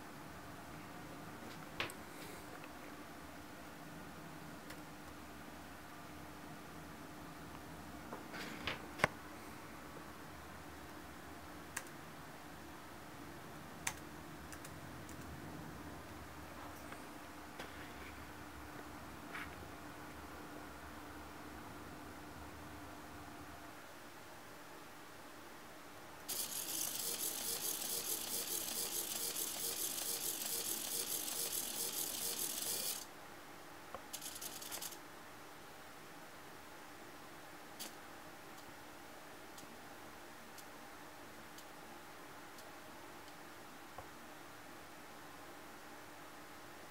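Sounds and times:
faint steady hum: 0.0s - 46.9s
servos buzzing rattle: 26.3s - 33.1s, 34.1s - 35.0s.

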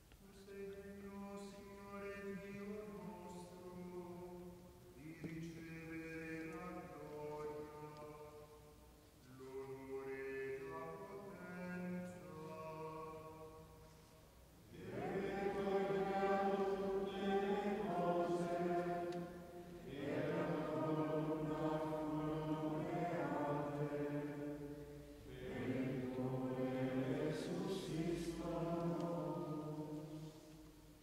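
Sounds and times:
slow liturgical chant: 0.0s - 31.0s.

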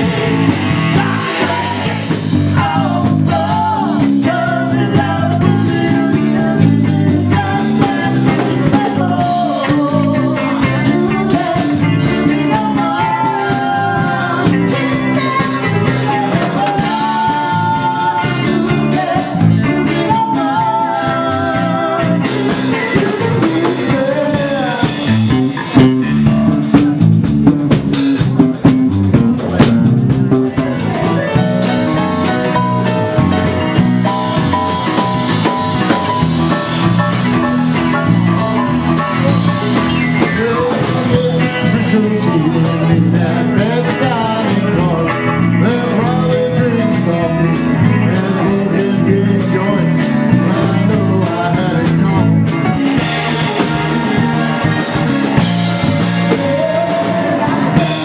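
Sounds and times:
live band playing: 0.0s - 58.0s
woman singing into a microphone: 0.9s - 25.0s
drum hits: 22.4s - 41.4s.

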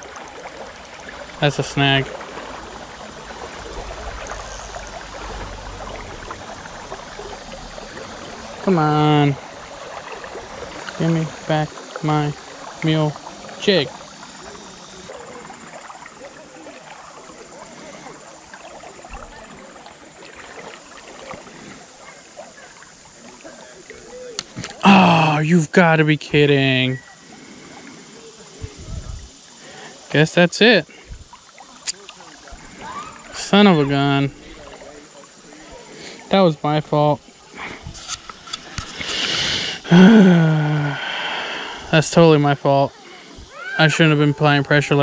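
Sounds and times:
river water babbling: 0.0s - 45.0s
low rumble: 2.1s - 8.7s.

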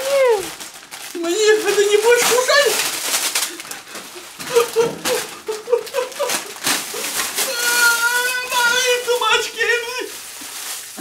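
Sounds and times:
plastic wrapping crinkling: 0.0s - 11.0s
man squealing: 4.5s - 10.1s.

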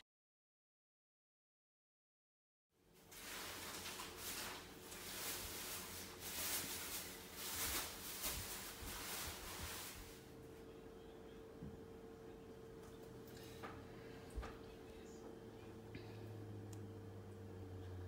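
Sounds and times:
steady low hum: 2.9s - 18.0s
soft rustling: 3.0s - 10.3s.

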